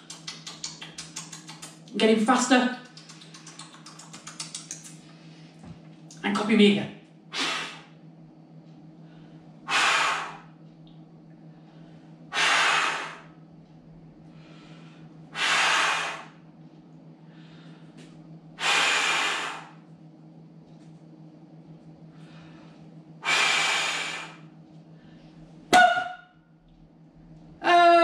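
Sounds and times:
man blowing hissing breaths: 0:07.3 - 0:08.0, 0:09.6 - 0:10.5, 0:12.3 - 0:13.3, 0:14.4 - 0:16.4, 0:18.6 - 0:19.8, 0:22.4 - 0:24.5.

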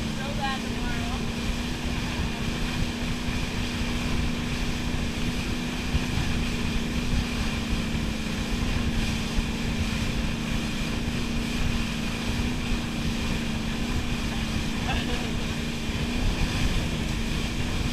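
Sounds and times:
boat engine humming: 0:00.0 - 0:17.9
wake rushing: 0:00.0 - 0:17.9
wind rumbling on microphone: 0:00.0 - 0:17.9.

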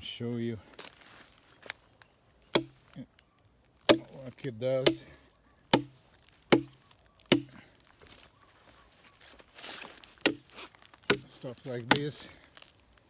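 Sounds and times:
soft rustle: 0:00.1 - 0:02.2, 0:07.7 - 0:13.0
hatchet chopping log: 0:02.5 - 0:02.8, 0:03.9 - 0:04.2, 0:04.8 - 0:07.6, 0:10.2 - 0:12.2.

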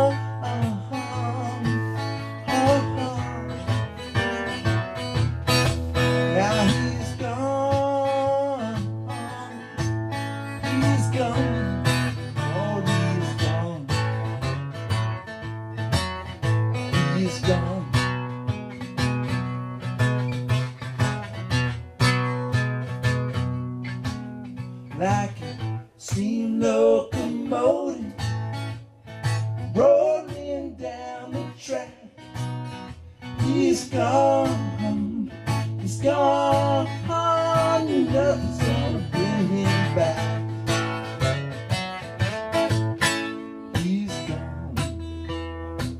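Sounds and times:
acoustic guitar strummed and picked: 0:00.0 - 0:45.9
person singing: 0:33.4 - 0:40.5.

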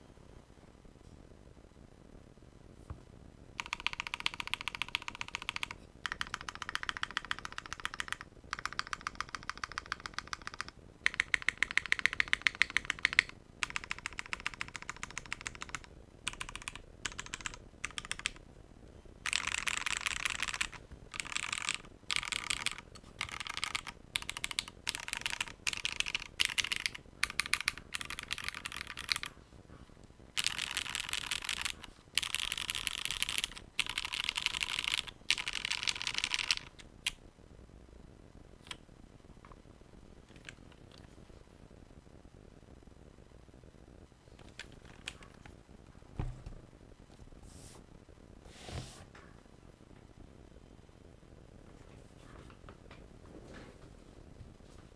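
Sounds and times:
mechanical keyboard typing: 0:03.6 - 0:18.4, 0:19.2 - 0:29.3, 0:30.4 - 0:37.2, 0:40.3 - 0:41.1, 0:44.4 - 0:45.5.

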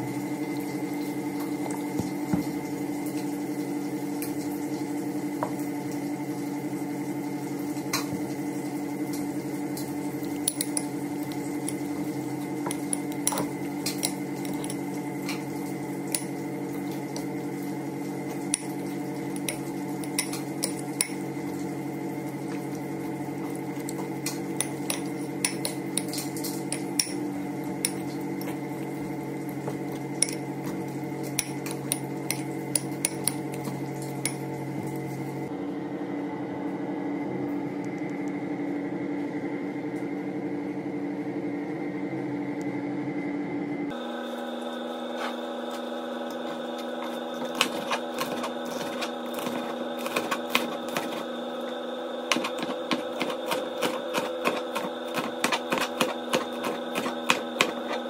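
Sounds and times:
steady mechanical hum: 0:00.0 - 0:58.0
fork scraping ceramic bowl: 0:12.7 - 0:14.9, 0:47.0 - 0:51.2.

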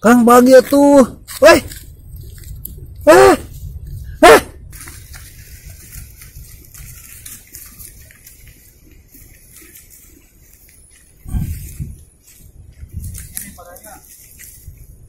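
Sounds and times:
faint scuffs and rustles: 0:04.8 - 0:15.0.

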